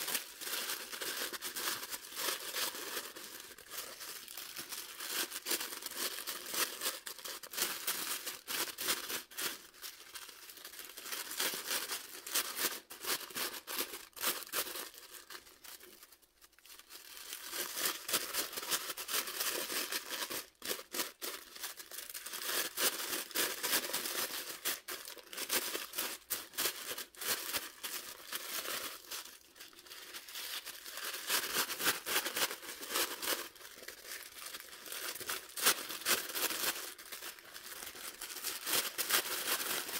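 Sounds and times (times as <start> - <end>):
tissue paper rustling and crinkling: 0.0 - 39.9.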